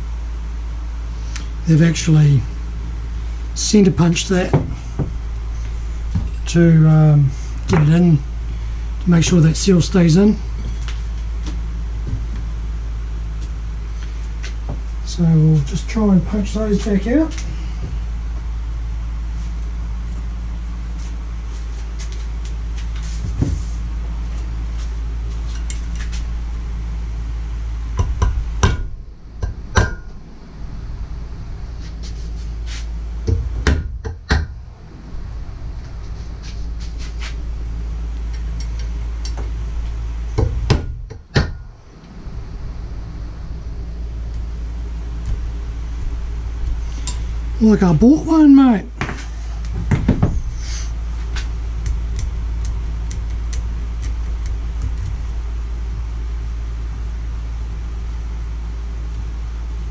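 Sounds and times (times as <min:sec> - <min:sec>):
steady low hum: 0:00.0 - 0:59.9
hammer tapping on metal punch: 0:28.0 - 0:30.1.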